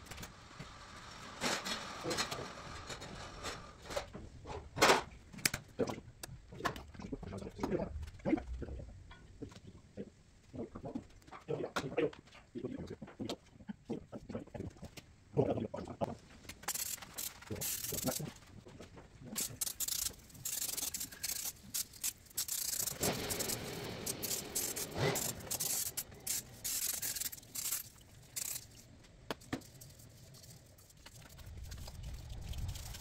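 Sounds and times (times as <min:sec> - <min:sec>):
rag rubbing and scraping: 0:16.5 - 0:18.5, 0:19.3 - 0:33.0
aerosol spray hissing: 0:19.4 - 0:28.6.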